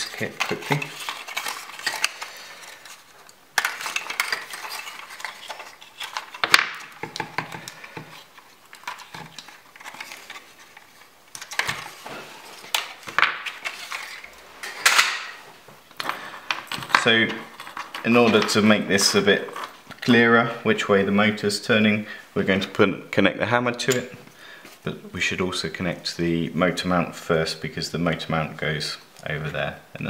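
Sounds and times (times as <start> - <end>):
packaging rustling: 0.0 - 20.1.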